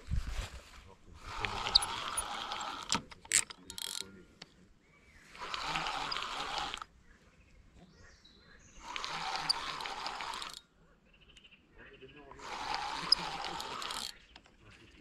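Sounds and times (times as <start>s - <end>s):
fishing reel whirring: 1.2s - 4.0s, 5.3s - 6.9s, 8.8s - 10.6s, 12.4s - 14.2s
sharp clicks and knocks: 1.4s - 4.6s.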